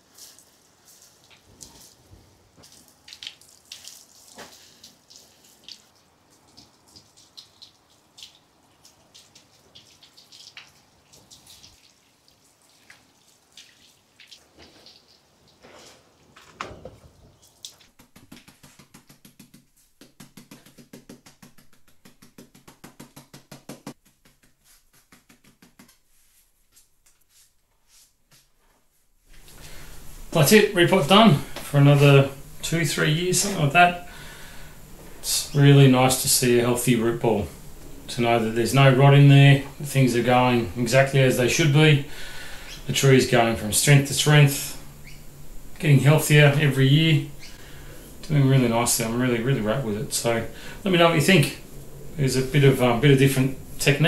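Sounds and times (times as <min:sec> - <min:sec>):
water splashing and dripping on soil: 0:00.0 - 0:02.0, 0:02.6 - 0:15.6, 0:17.4 - 0:26.0.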